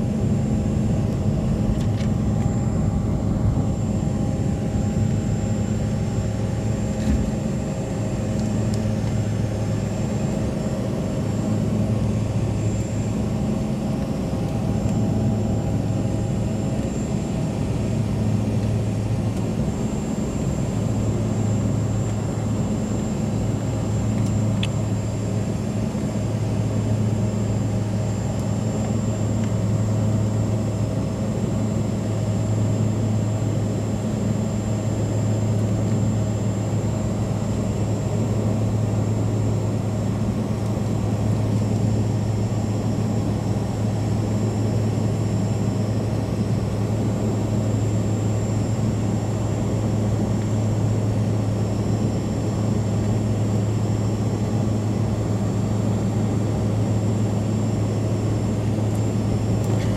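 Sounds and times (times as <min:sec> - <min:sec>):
low hum: 0:00.0 - 0:28.5
jet engines droning: 0:00.0 - 0:59.9.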